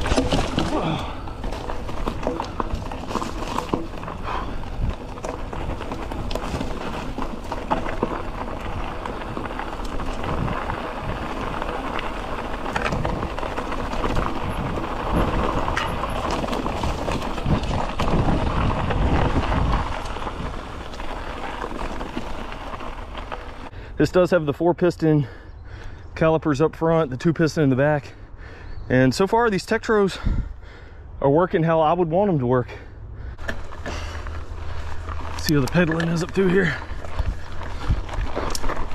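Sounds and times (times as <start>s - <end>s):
bike rattling over bumps: 0.0s - 23.9s, 33.2s - 38.9s
tyres crunching on gravel: 0.0s - 25.3s, 33.4s - 38.9s.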